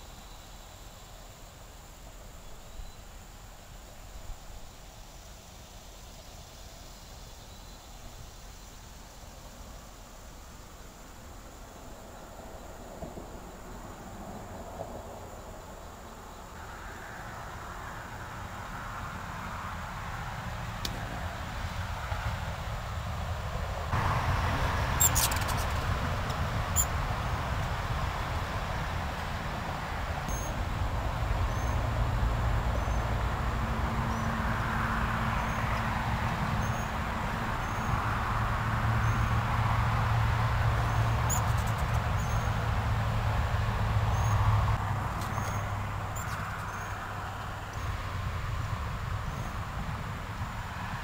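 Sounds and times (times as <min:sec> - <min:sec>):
insect-like hiss: 0:00.0 - 0:21.7, 0:23.9 - 0:51.0
faint high chirp: 0:02.5 - 0:03.1, 0:25.0 - 0:25.5, 0:30.3 - 0:30.6, 0:36.6 - 0:36.9, 0:40.9 - 0:42.6, 0:44.1 - 0:44.4, 0:45.3 - 0:47.0.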